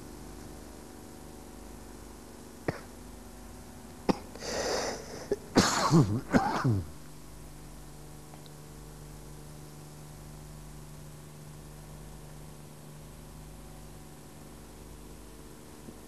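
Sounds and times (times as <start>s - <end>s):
person coughing: 2.7s - 3.0s, 4.1s - 7.0s
hissing breath: 4.3s - 5.4s.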